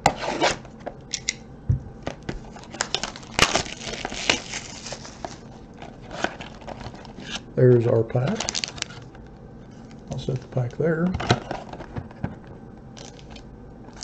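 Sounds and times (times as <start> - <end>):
plastic wrap crinkling: 2.4 - 7.4, 8.2 - 9.3, 13.0 - 14.0.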